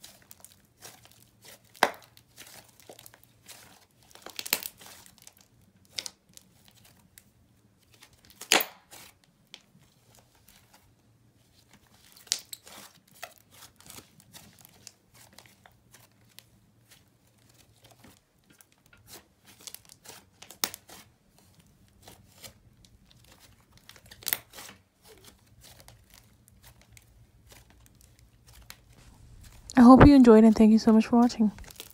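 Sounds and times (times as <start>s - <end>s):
slime popping and crackling: 31.5s - 31.9s.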